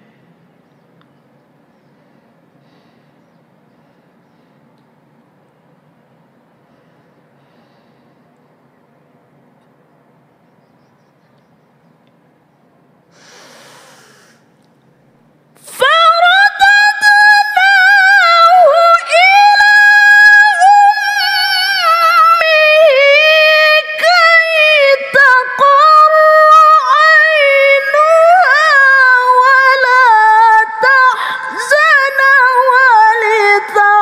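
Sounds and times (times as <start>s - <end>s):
woman reciting melodically: 15.6s - 34.0s.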